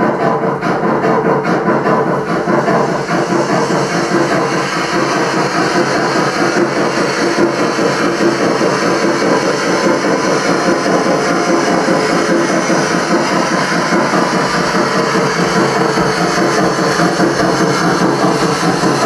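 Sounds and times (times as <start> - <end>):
model train running on track: 0.0 - 19.0.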